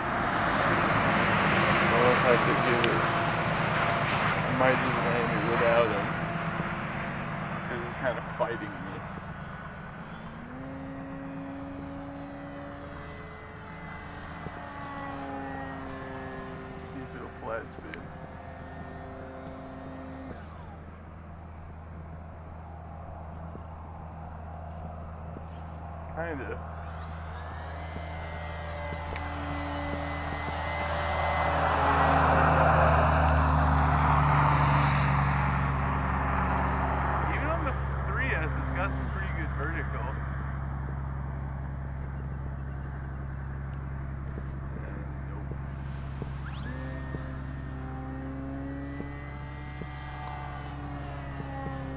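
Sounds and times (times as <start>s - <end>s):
electric rc plane motor whine: 0.0s - 51.9s.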